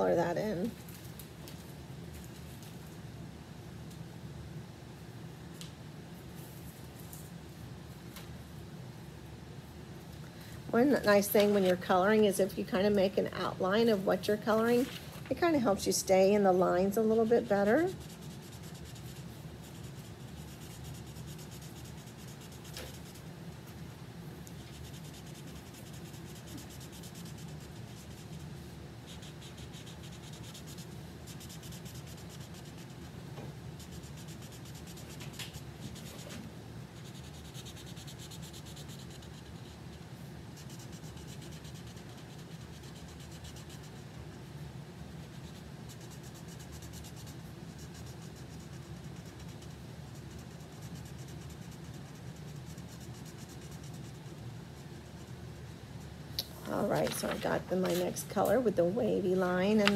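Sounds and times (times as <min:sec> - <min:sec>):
steady low hum: 0:00.0 - 0:59.9
marker scratching on paper: 0:17.5 - 0:23.2, 0:24.5 - 0:33.1, 0:33.8 - 0:36.4, 0:37.0 - 0:44.2, 0:45.2 - 0:55.4, 0:56.7 - 0:58.7.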